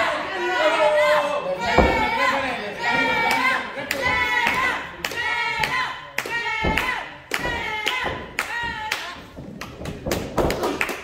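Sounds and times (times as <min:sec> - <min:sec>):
voices shouting: 0:00.0 - 0:06.0
crowd clapping in rhythm: 0:03.2 - 0:11.0.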